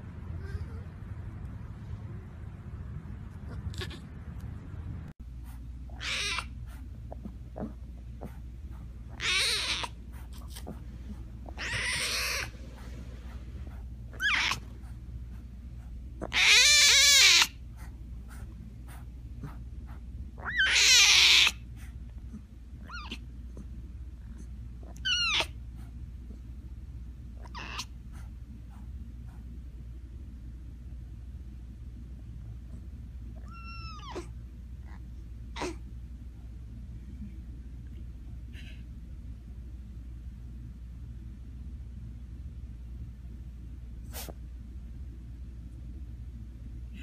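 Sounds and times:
steady low hum: 0.0 - 47.0
tiger cub squalling calls: 6.0 - 6.6, 11.5 - 12.5.

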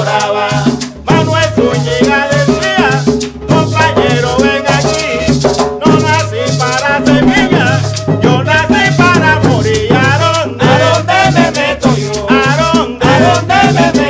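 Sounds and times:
wavering melody line: 0.0 - 5.2
hand drums: 0.0 - 14.0
maraca shaking: 0.0 - 14.0.

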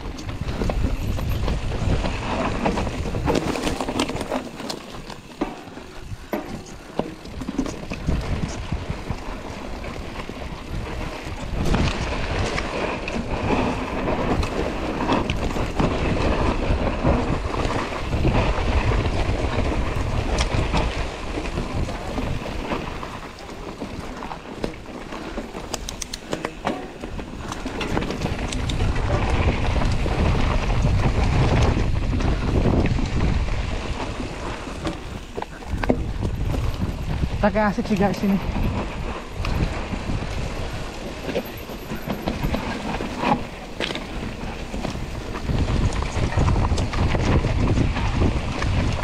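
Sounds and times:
wind on microphone: 0.0 - 5.0, 5.9 - 49.0
bike clattering and rattling: 0.0 - 49.0
tyres crunching over stones: 0.0 - 49.0.

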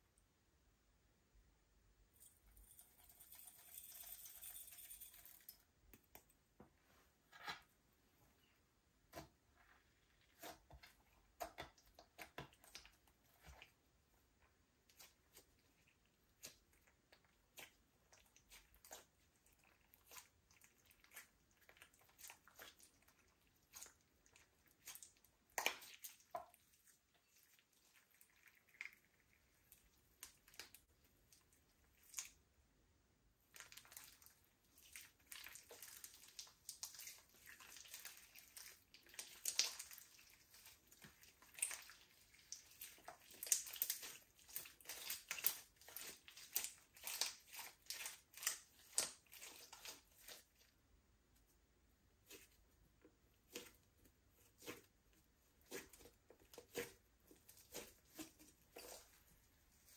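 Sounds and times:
slime crackling: 33.5 - 50.6.

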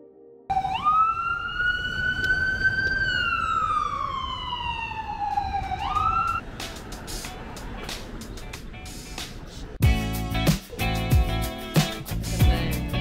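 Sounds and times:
emergency vehicle siren wailing: 0.5 - 7.8
city street noise: 0.5 - 13.0.

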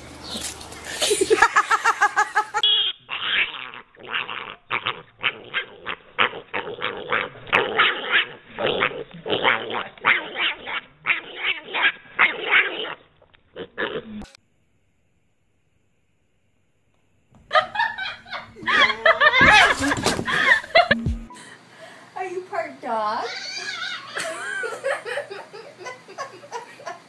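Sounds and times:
pig calling in rapid bursts: 2.7 - 14.1, 23.2 - 24.2
dog whining: 3.1 - 13.0.

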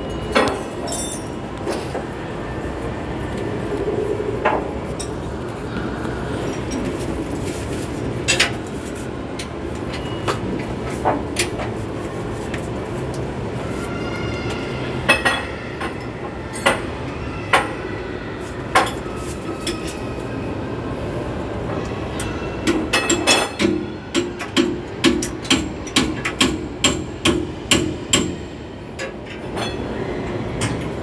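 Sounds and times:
hand tools clinking on metal: 0.1 - 1.4.

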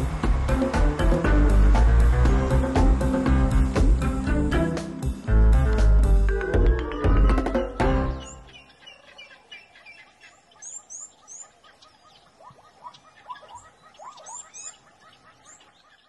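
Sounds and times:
faint outdoor background: 0.0 - 16.0
birds chirping and whistling: 6.3 - 16.0.

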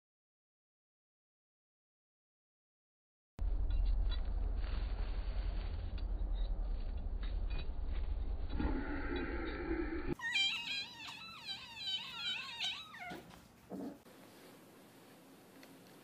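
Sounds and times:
kitten meowing: 10.2 - 13.3.

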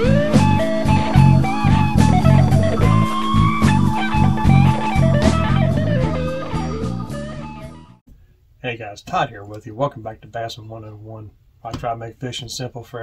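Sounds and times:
blues guitar music: 0.0 - 8.0.

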